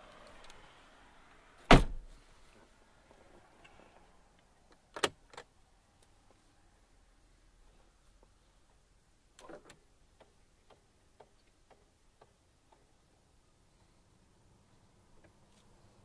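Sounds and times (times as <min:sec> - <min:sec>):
car door shutting thump: 0:01.7 - 0:02.1.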